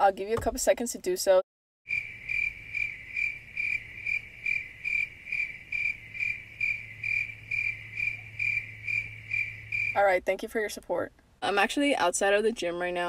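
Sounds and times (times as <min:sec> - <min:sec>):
crickets chirping: 0:01.9 - 0:10.0.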